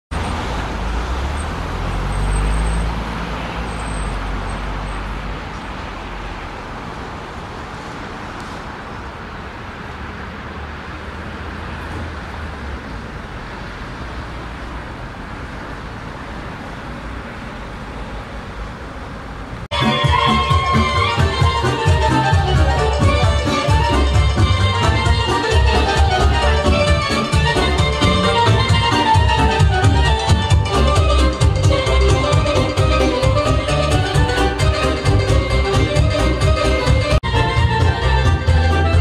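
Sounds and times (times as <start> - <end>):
background traffic hum: 0.1 - 19.8
car passing with engine rumble: 0.1 - 19.8.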